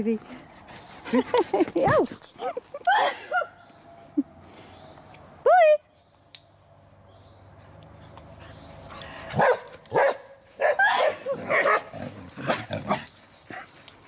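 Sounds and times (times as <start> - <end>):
dogs barking and yipping: 7.8 - 14.0.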